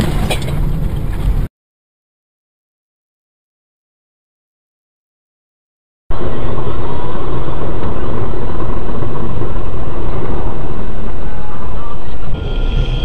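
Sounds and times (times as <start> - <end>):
car road and engine rumble: 0.0 - 1.5.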